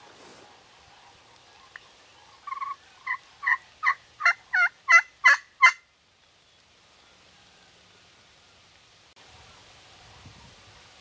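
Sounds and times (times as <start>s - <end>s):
turkey yelps: 0.3s - 5.8s.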